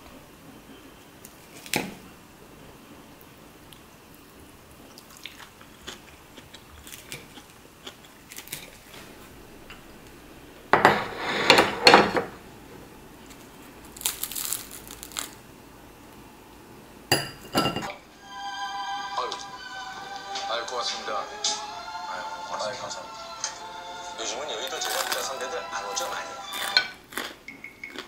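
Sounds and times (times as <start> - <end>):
crunching of toasted bread: 4.9 - 9.1, 13.2 - 15.5, 24.6 - 28.0.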